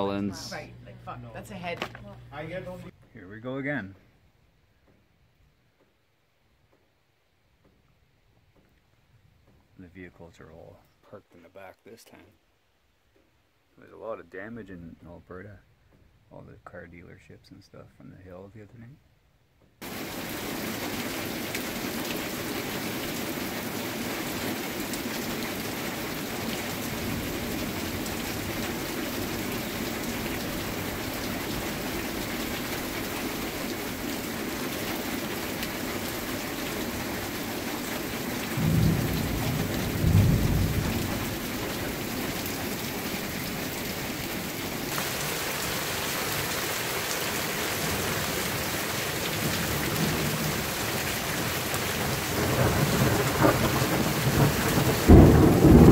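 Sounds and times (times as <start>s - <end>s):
steady rain falling: 0.0s - 19.0s, 19.6s - 55.9s
thunder rumbling: 25.8s - 37.4s, 38.5s - 44.2s, 47.8s - 55.9s.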